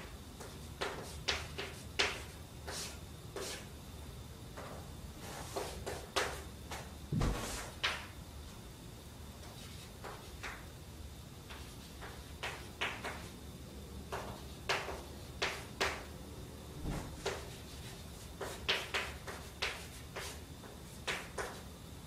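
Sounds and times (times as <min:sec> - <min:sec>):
chalk tapping on chalkboard: 0:00.4 - 0:03.7, 0:05.2 - 0:08.1, 0:09.4 - 0:10.6, 0:11.5 - 0:13.3, 0:14.1 - 0:16.1, 0:17.2 - 0:21.6.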